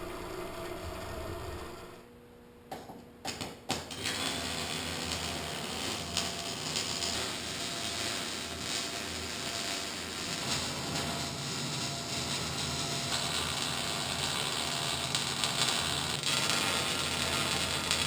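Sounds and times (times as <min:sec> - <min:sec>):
steady machine hum: 0:00.0 - 0:02.7, 0:04.4 - 0:18.0
welder arc crackling: 0:03.7 - 0:18.0.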